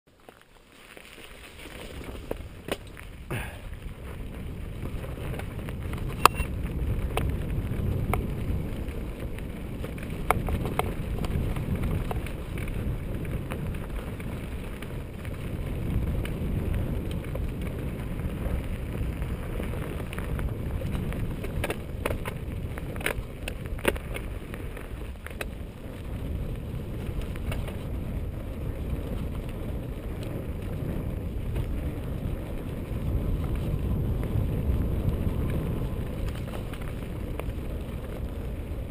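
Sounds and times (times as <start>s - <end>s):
bike rattling over rough ground: 0.1s - 38.9s
bike tyres rolling on dirt: 0.1s - 38.9s
wind on microphone: 1.8s - 38.9s.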